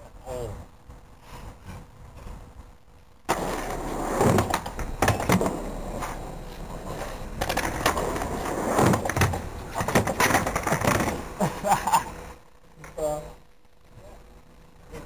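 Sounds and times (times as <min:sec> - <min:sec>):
skateboard wheels rolling on asphalt: 0:00.8 - 0:13.0
skateboard clacking on ground: 0:03.3 - 0:06.2, 0:06.9 - 0:11.3.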